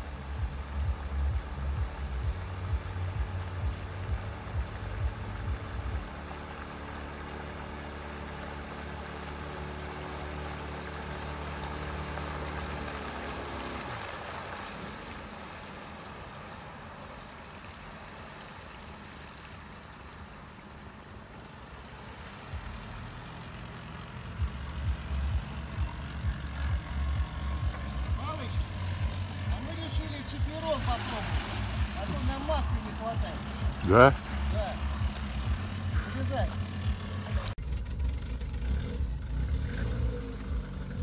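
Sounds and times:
boat motor running: 0.0s - 16.9s, 20.0s - 41.0s
soft hiss of water: 5.6s - 24.3s, 30.1s - 33.6s.

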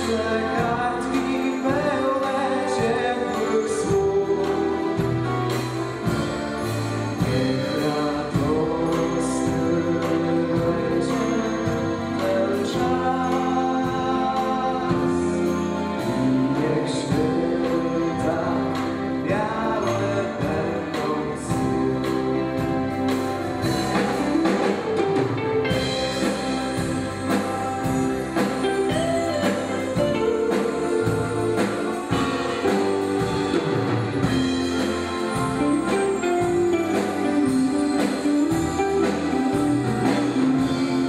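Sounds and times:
instrumental accompaniment: 0.0s - 41.0s
steady percussive beat: 0.0s - 41.0s
group singing: 29.4s - 33.6s.

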